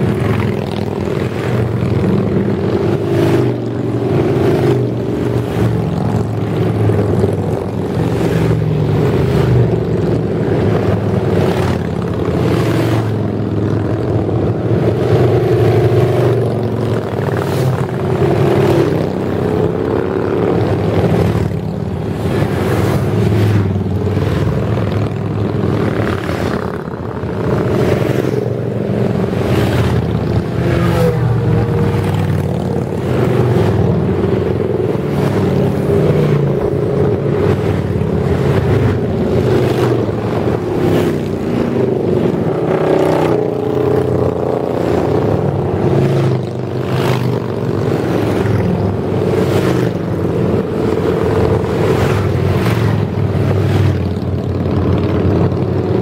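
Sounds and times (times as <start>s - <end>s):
motorcycles riding past: 0.0s - 56.0s.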